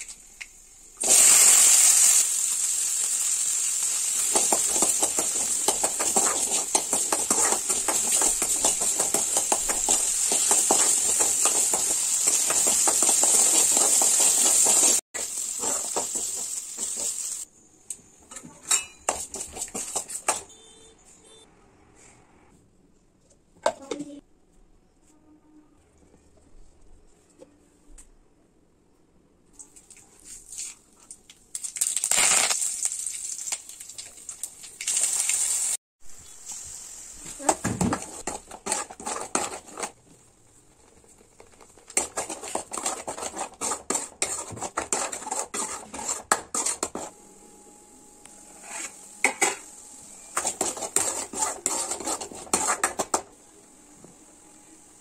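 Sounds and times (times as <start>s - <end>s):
hot oil sizzling: 0.0s - 17.5s, 31.6s - 40.0s, 48.6s - 53.3s.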